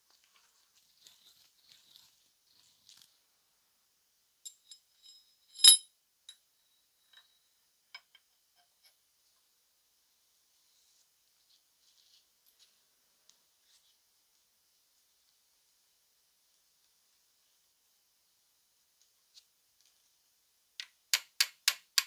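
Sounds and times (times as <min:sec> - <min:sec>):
sharp ringing metallic clink: 0:04.5 - 0:06.4.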